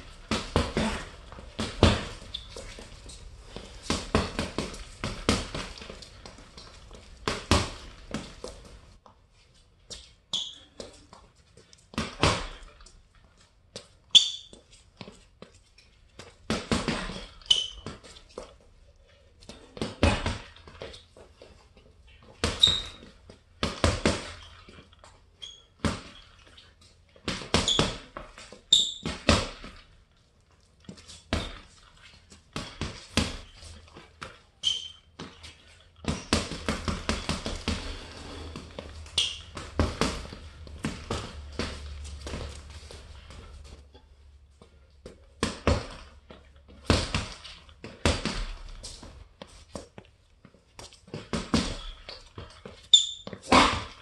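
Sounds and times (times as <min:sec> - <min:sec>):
gloves punching heavy bag: 0:00.0 - 0:08.6, 0:11.9 - 0:12.8, 0:16.5 - 0:18.0, 0:19.5 - 0:20.7, 0:23.6 - 0:24.4, 0:27.2 - 0:29.8, 0:32.5 - 0:34.0, 0:36.0 - 0:43.7, 0:45.2 - 0:48.8, 0:51.0 - 0:54.0.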